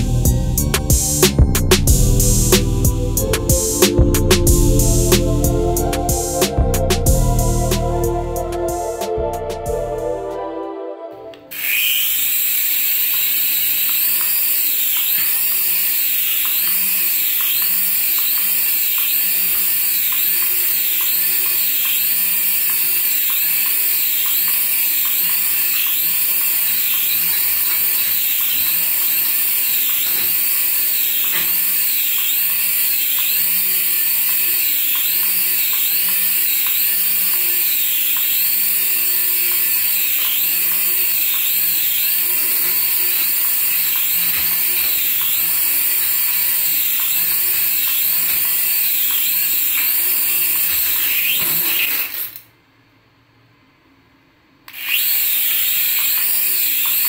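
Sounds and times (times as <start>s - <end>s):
toy helicopter rotor whine: 11.5s - 52.4s, 54.7s - 57.0s.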